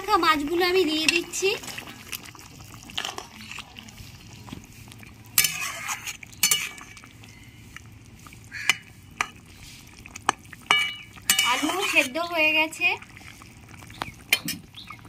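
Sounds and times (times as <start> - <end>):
gravy simmering: 0.0 - 15.0
metal spatula scraping a pan: 5.3 - 7.0, 10.7 - 12.3.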